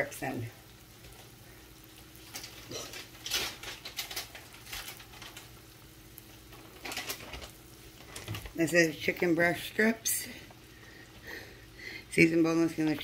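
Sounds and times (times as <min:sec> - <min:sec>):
faint steady hum: 0:00.0 - 0:13.0
plastic bag crinkling: 0:02.2 - 0:05.6, 0:06.4 - 0:08.6.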